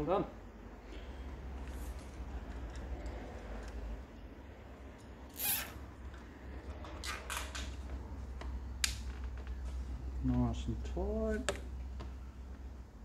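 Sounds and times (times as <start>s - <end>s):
steady low hum: 0.0s - 13.0s
cable tie being zipped: 5.3s - 5.8s.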